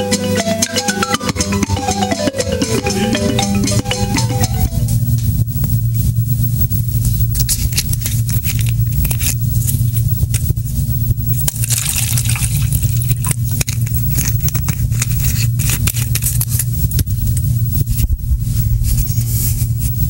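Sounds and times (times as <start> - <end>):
low electrical hum: 0.0 - 20.0
crackles and clicks: 3.8 - 20.0.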